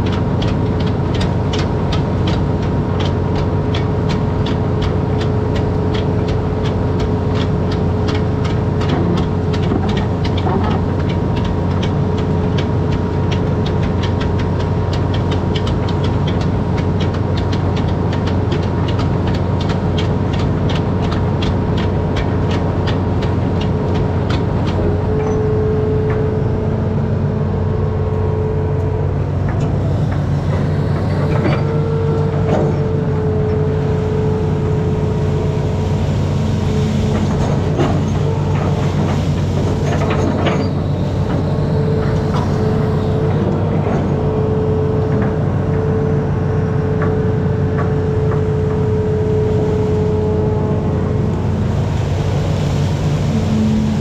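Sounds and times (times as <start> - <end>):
diesel engine running: 0.0 - 54.0
steady whine: 24.2 - 54.0.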